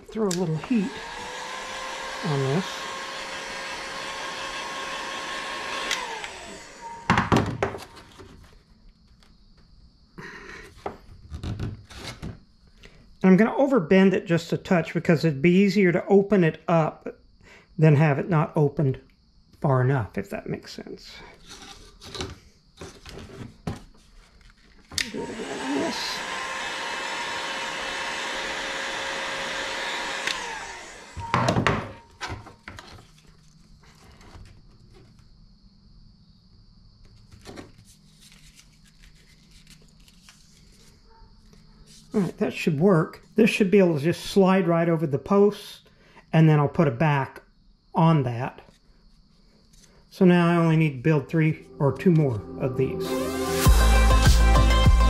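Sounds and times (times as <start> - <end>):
heat gun blowing: 0.0 - 8.0, 24.9 - 32.1
heat gun fan winding down: 0.0 - 8.0, 24.9 - 32.1
knocks on workbench: 7.1 - 7.8, 31.2 - 32.0
rubbing and handling plastic: 21.3 - 25.0, 32.0 - 35.3, 37.0 - 42.4.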